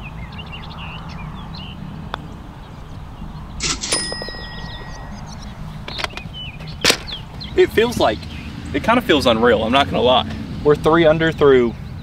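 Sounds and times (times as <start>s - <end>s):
faint birds chirping: 0.0s - 9.6s.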